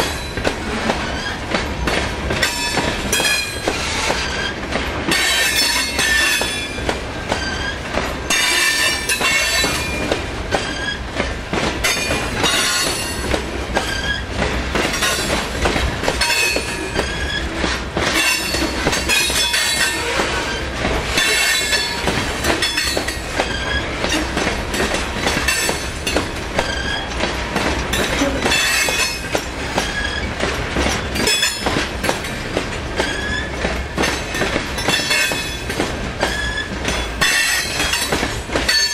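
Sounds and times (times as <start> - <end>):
train cars rumbling: 0.0 - 38.9
wheels clicking over rail joints: 0.0 - 38.9
wheel squeal: 7.3 - 7.8, 10.6 - 11.0, 13.8 - 14.3, 17.0 - 17.6, 23.4 - 24.0, 26.6 - 27.2, 29.8 - 30.3, 33.0 - 33.6, 36.2 - 38.0.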